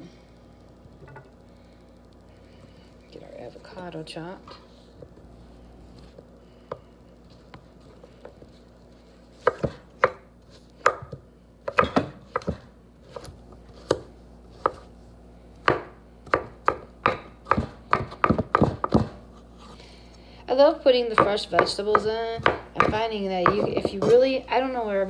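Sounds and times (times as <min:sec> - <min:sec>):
knife chopping on wooden board: 0:09.4 - 0:10.2, 0:10.8 - 0:14.8, 0:15.6 - 0:19.2, 0:21.1 - 0:24.3.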